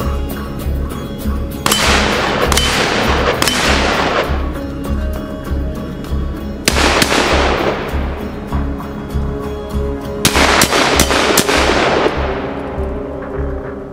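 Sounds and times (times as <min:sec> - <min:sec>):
rifle shots echoing: 0:01.7 - 0:04.6, 0:06.7 - 0:08.8, 0:10.2 - 0:12.8.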